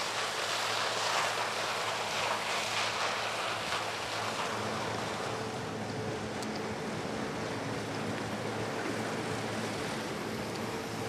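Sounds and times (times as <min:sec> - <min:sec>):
cutting and machinery noise: 0:00.0 - 0:11.0
harvester engine hum: 0:00.0 - 0:11.0.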